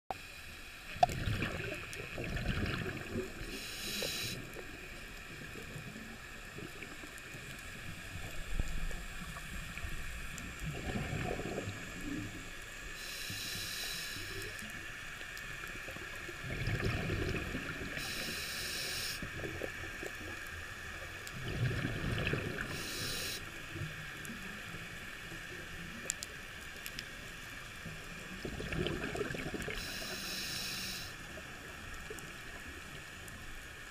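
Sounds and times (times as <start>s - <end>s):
exhaled air bubbling: 0.9s - 13.2s, 15.8s - 20.4s, 21.2s - 24.0s, 28.1s - 30.4s
scuba regulator inhales hissing: 3.4s - 4.5s, 13.0s - 14.5s, 17.9s - 19.3s, 22.6s - 23.5s, 29.8s - 31.2s.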